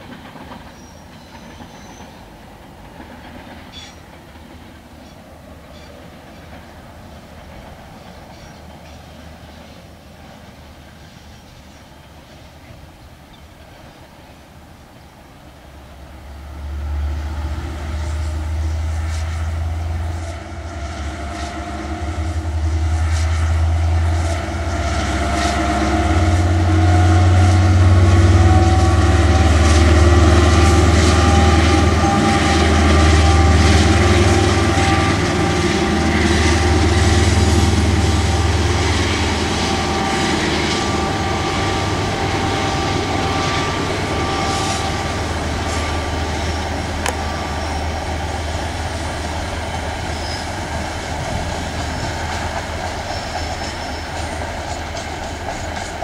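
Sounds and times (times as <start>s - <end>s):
diesel locomotive engine drone: 0.0s - 56.0s
steady high whine: 16.2s - 56.0s.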